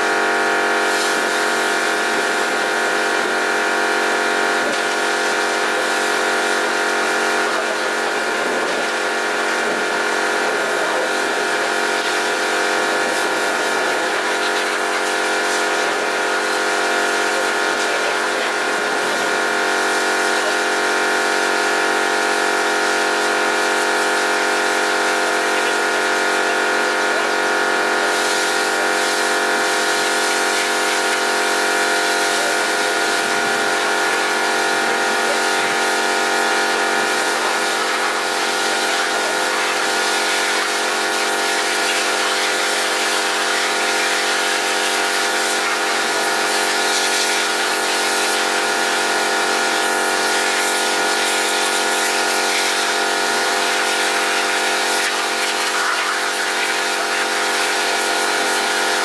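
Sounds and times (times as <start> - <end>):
pressure washer pump whine: 0.0 - 59.0
water jet hissing: 0.8 - 3.3, 23.0 - 59.0.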